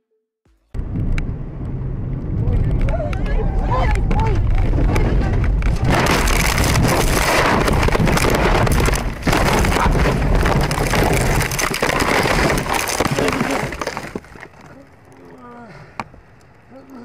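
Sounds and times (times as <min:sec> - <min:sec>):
car crash rushing and rumbling: 0:04.0 - 0:14.6
glass and debris clattering: 0:05.8 - 0:14.8.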